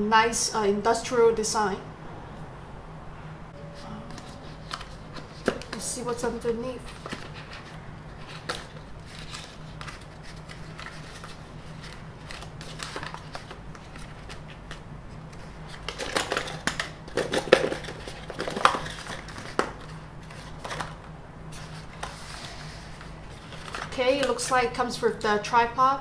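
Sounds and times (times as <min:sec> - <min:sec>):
cardboard insert sliding and scraping: 0:21.5 - 0:23.8.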